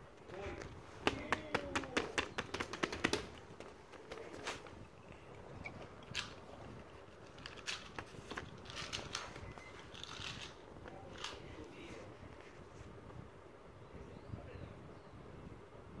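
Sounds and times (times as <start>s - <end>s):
toys clicking and tapping: 1.0s - 3.4s.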